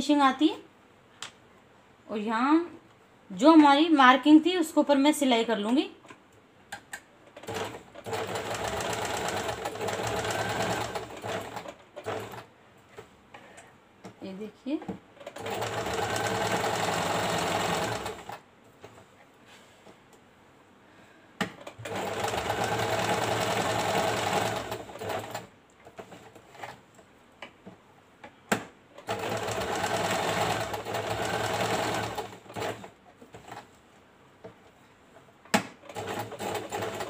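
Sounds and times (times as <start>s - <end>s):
sewing machine stitching: 7.4s - 12.5s, 15.2s - 18.4s, 21.6s - 26.8s, 29.0s - 33.6s, 35.8s - 37.0s.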